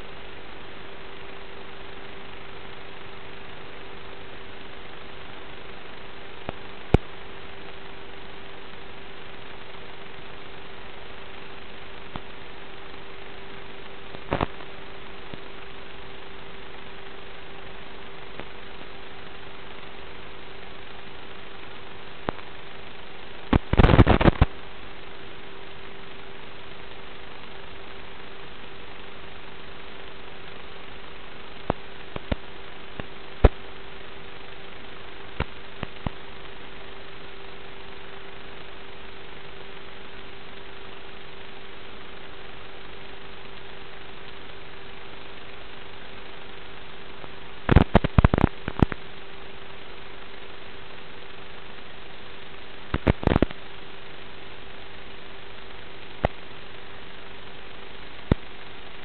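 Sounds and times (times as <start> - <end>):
static hiss: 0.0 - 59.0
steady hum: 0.0 - 59.0
crackling pops: 6.4 - 7.2, 14.1 - 15.5, 22.2 - 22.5, 23.5 - 24.6, 31.6 - 33.6, 35.3 - 36.2, 47.6 - 49.1, 52.9 - 53.7, 58.2 - 58.5.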